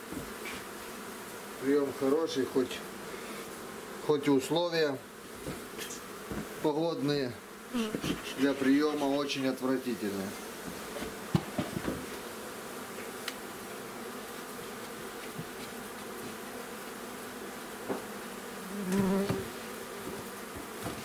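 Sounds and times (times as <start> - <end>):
close bee buzz passing: 0.0 - 21.0
honeybees humming: 0.0 - 21.0
hive frames knocking: 5.4 - 6.6, 7.8 - 9.3, 10.6 - 12.3, 14.8 - 16.4, 17.8 - 18.2, 18.8 - 21.0.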